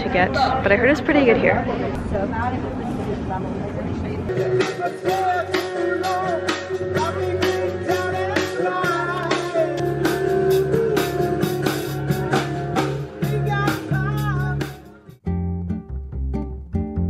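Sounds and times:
song with singing guitar and drums: 4.3s - 15.3s.

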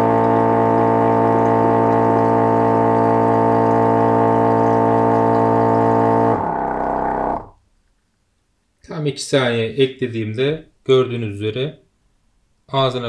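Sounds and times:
pump motor humming: 0.0s - 7.6s.

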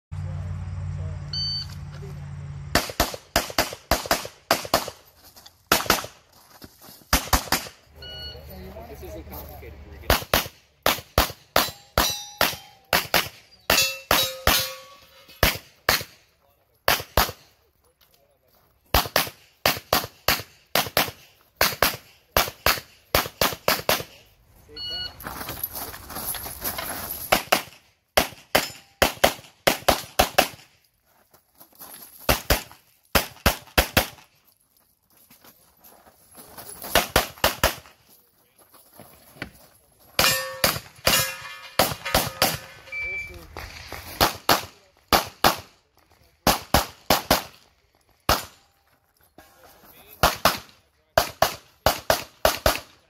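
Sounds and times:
pistol shots: 2.7s - 5.0s, 5.7s - 6.2s, 7.1s - 7.8s, 10.1s - 16.2s, 16.9s - 17.5s, 18.9s - 24.2s, 27.3s - 30.7s, 32.3s - 34.2s, 37.0s - 37.9s, 40.2s - 42.8s, 44.2s - 45.7s, 46.4s - 47.6s, 48.3s - 48.6s, 50.2s - 53.0s
metallic ringing of steel targets: 11.5s - 15.6s, 28.5s - 29.0s, 40.2s - 43.4s.

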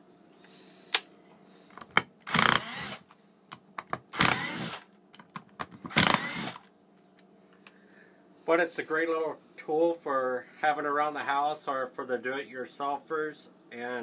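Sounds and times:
impact driver running: 2.3s - 3.1s, 4.1s - 4.9s, 5.9s - 6.7s.

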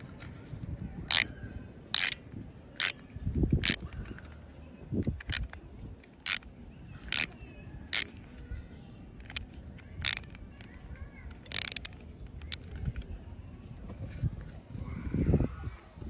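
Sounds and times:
plastic toy clicks: 1.1s - 1.3s, 1.9s - 4.4s, 5.0s - 8.2s, 9.2s - 13.1s.

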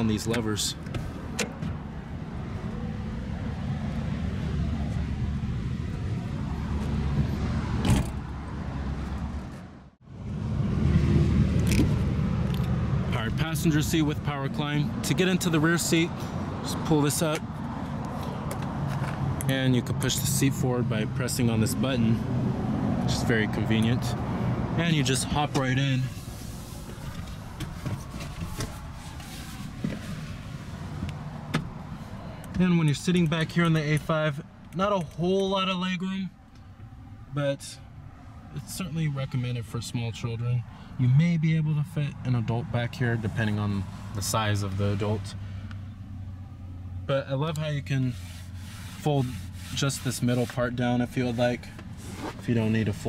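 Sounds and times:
soft rustling: 26.1s - 31.1s.

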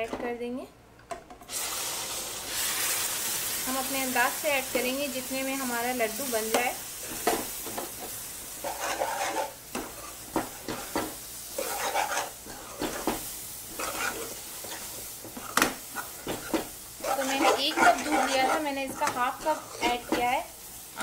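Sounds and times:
milk sizzling: 1.5s - 21.0s
metal spoon scraping a pan: 8.6s - 20.4s.

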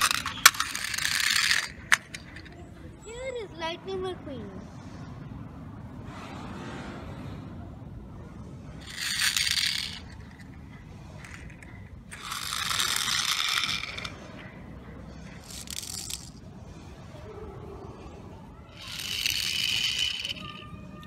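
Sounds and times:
toy cars rolling on stone: 0.0s - 2.7s, 8.8s - 16.6s, 18.6s - 21.0s.

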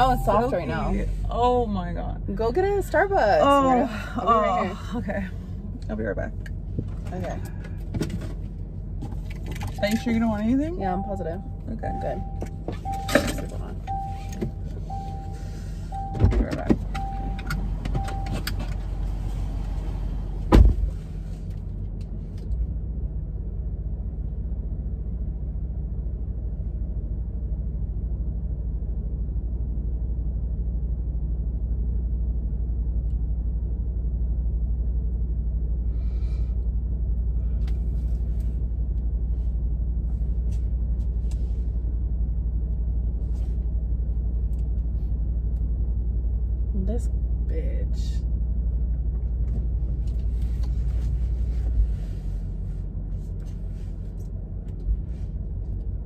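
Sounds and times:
car door-open chime beeping: 0.0s - 0.8s, 10.9s - 18.6s
low cabin rumble: 0.0s - 56.0s
car door slamming shut: 20.4s - 20.9s.

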